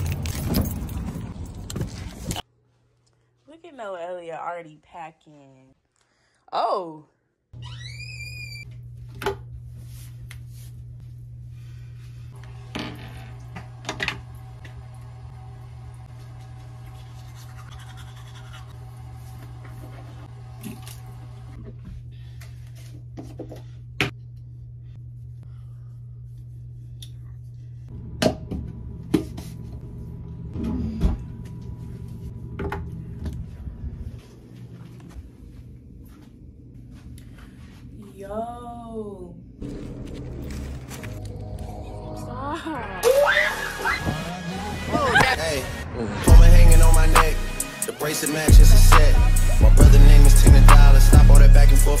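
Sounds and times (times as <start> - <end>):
low room hum: 5.4 - 43.0.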